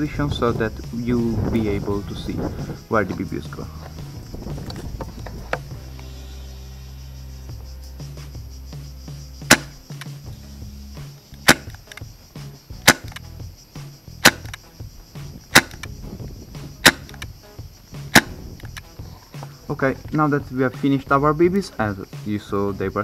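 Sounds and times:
airsoft revolver shots: 9.5s - 9.8s, 11.3s - 12.0s, 12.8s - 13.2s, 14.2s - 14.6s, 15.5s - 15.9s, 16.7s - 17.3s, 18.0s - 18.8s.

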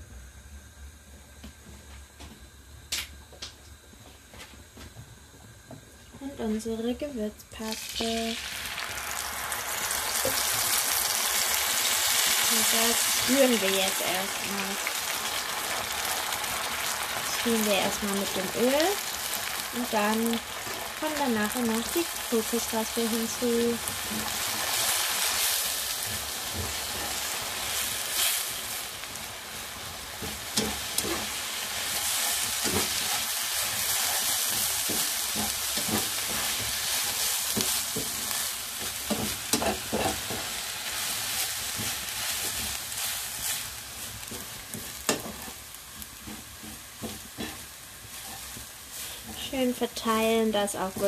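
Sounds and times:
paste sizzling in hot oil: 7.6s - 51.0s
spatula scraping a pan: 30.2s - 49.6s.

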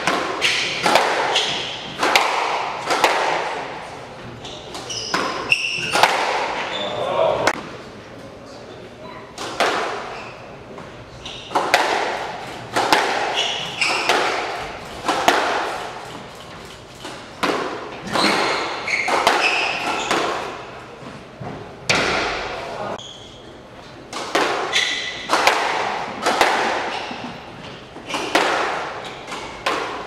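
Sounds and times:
squash ball hitting racquets and walls: 0.0s - 7.9s, 9.3s - 30.0s
shoe squeaks: 0.4s - 2.0s, 4.4s - 7.3s, 9.0s - 9.4s, 10.0s - 11.6s, 13.2s - 15.0s, 18.0s - 20.7s, 23.0s - 23.7s, 24.7s - 25.3s, 26.8s - 28.4s, 29.0s - 29.6s.

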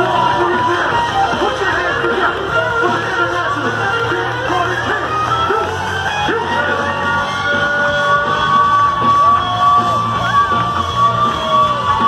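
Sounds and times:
crowd cheering and whooping: 0.0s - 12.0s
live band music over pa: 0.0s - 12.0s.

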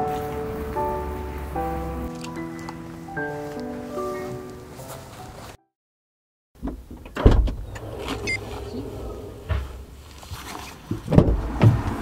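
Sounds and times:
bags and gear being handled: 2.1s - 5.6s, 9.9s - 11.0s
low rumble: 7.6s - 10.4s.

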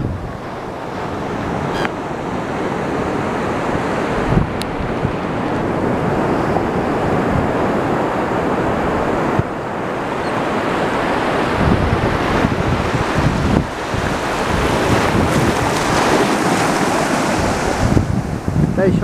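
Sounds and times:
ocean surf washing: 0.0s - 19.0s
wind buffeting microphone: 0.0s - 19.0s.

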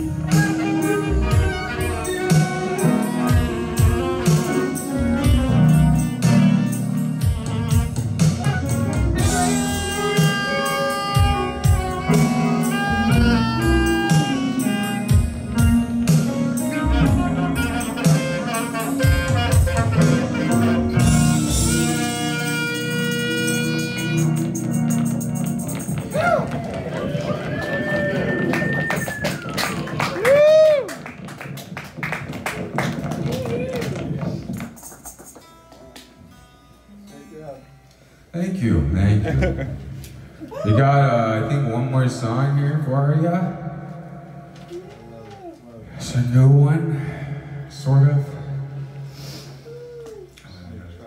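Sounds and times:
drums and cymbals: 0.0s - 26.4s
bass notes: 0.0s - 29.0s
live band playing: 0.0s - 37.1s.

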